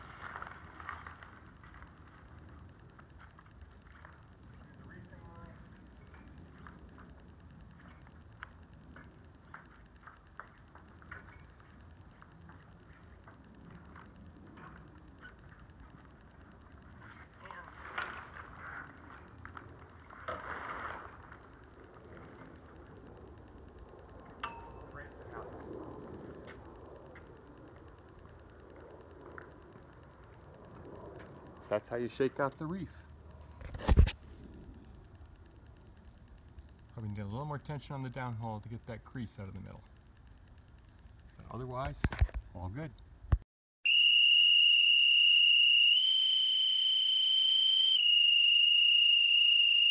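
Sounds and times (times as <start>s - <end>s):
rustling of line and sail: 0.0s - 23.1s
sharp metallic clink: 24.4s - 24.9s
high whistle: 43.8s - 49.9s.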